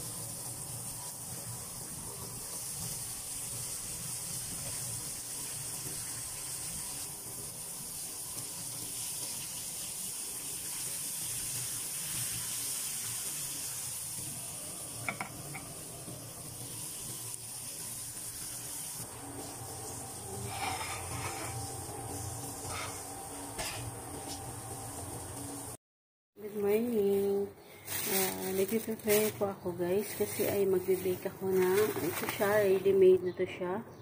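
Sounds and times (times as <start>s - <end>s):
fish frying in hot oil: 0.0s - 25.8s.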